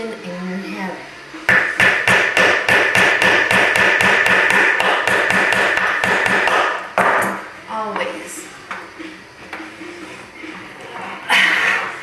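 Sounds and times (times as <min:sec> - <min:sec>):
hammer striking metal rod: 0:01.5 - 0:07.4.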